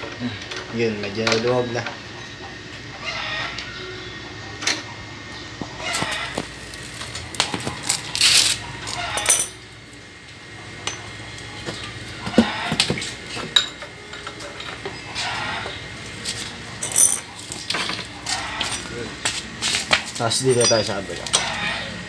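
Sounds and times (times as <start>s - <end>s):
wrench clinking on metal: 8.3s - 9.6s, 16.8s - 18.9s, 20.2s - 21.6s
metal rasping: 16.8s - 22.0s.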